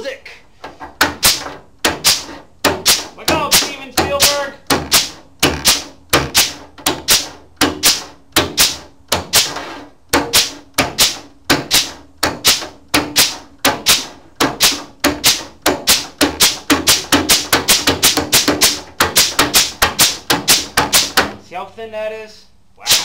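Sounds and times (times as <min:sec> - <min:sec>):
air flanging tool clacking: 0:00.6 - 0:21.4.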